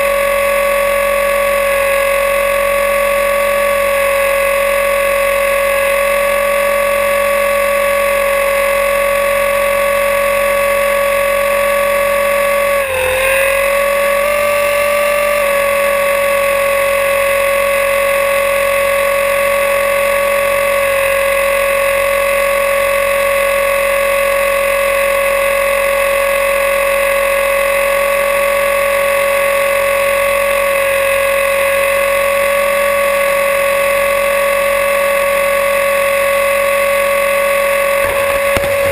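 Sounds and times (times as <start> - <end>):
rc helicopter motor whine: 0.0 - 38.9.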